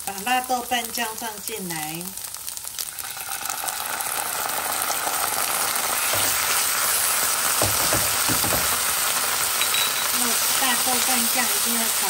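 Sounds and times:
food sizzling in oil: 0.0 - 12.0
wooden spatula knocking pan: 7.6 - 8.9.

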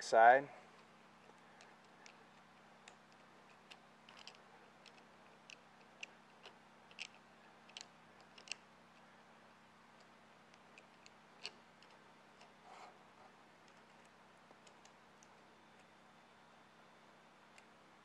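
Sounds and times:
strap buckle clicking: 2.8 - 8.6.

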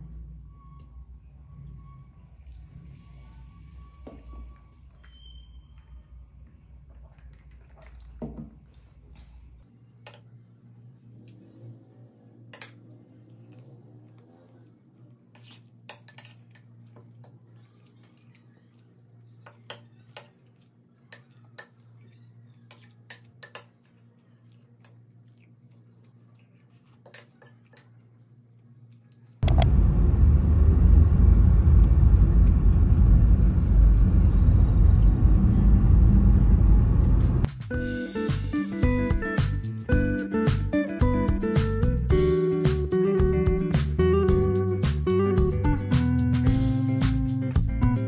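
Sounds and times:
cutlery clinking on ceramic plate: 15.4 - 17.4
loud steady rushing noise: 29.4 - 37.7
low hum: 29.4 - 48.0.

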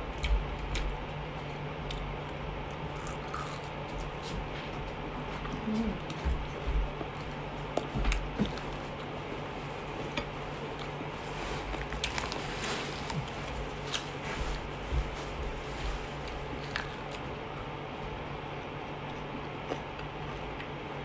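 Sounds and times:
person chewing fried chicken: 0.0 - 4.2, 16.2 - 21.0
steady low hum: 0.0 - 21.0.

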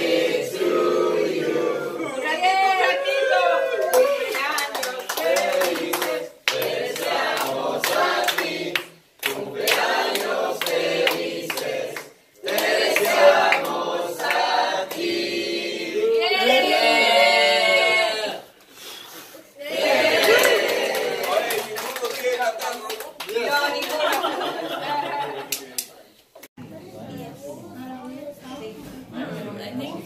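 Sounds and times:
group singing: 0.0 - 18.6, 19.6 - 21.3
hands clapping along: 3.8 - 15.1, 20.2 - 24.4.

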